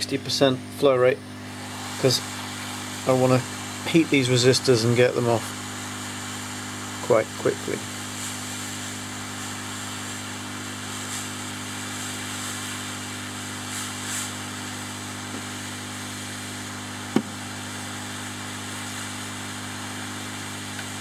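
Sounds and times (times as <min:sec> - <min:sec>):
hot-air gun blowing: 0:01.2 - 0:21.0.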